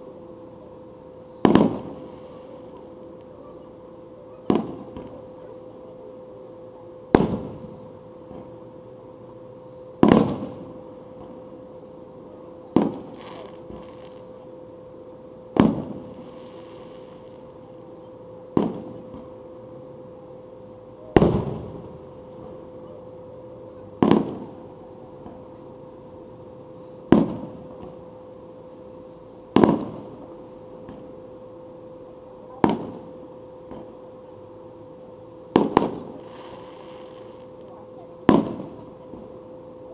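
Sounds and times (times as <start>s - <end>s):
fireworks booming: 1.4s - 2.9s, 4.4s - 5.4s, 7.1s - 8.6s, 10.0s - 11.6s, 12.6s - 14.3s, 15.5s - 17.4s, 18.5s - 19.4s, 21.1s - 22.7s, 24.0s - 25.7s, 27.0s - 28.1s, 29.4s - 31.2s, 32.5s - 34.0s, 35.5s - 39.4s.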